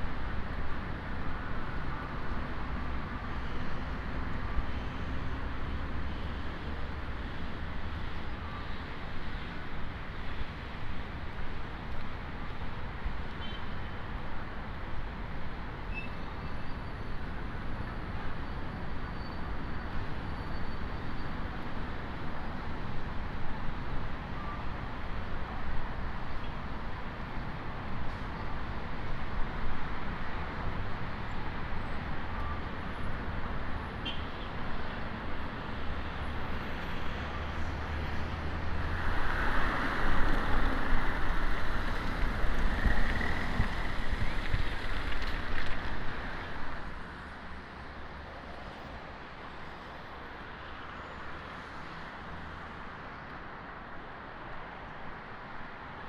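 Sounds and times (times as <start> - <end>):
city street traffic rumble: 0.0 - 56.0.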